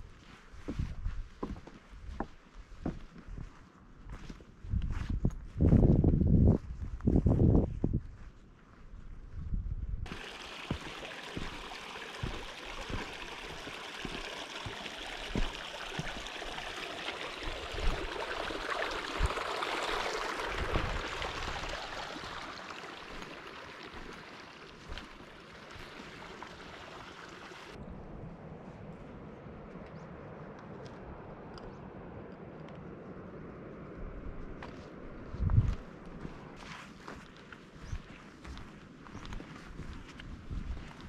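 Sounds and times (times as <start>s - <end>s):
soft low thumps: 9.2s - 16.7s
stream rushing over rocks: 10.1s - 27.8s.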